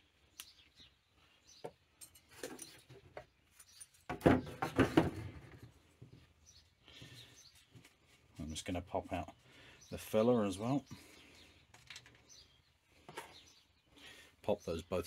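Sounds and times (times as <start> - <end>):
small clicks and handling noises: 11.7 - 12.3.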